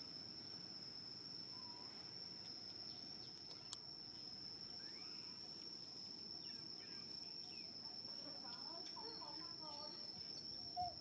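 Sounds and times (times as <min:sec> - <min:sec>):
high-pitched insect drone: 0:00.0 - 0:03.2, 0:04.1 - 0:11.0
faint chirping calls: 0:01.4 - 0:03.8, 0:04.6 - 0:05.6, 0:06.4 - 0:11.0.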